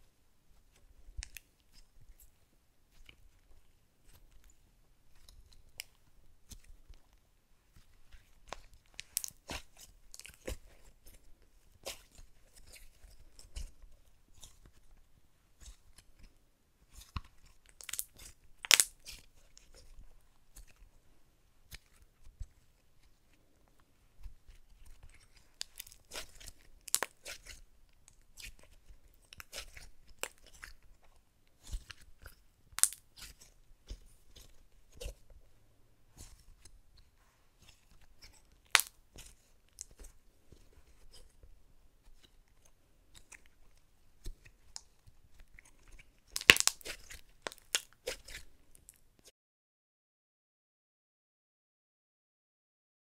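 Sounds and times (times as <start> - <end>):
slime crackling and popping: 8.4 - 11.1, 16.9 - 19.9, 24.8 - 30.8, 31.6 - 35.2, 37.7 - 40.1, 45.7 - 49.0.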